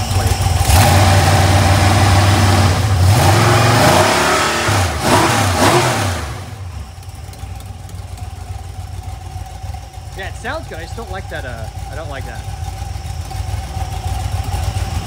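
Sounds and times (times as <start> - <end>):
engine revving and idling: 0.0 - 15.0.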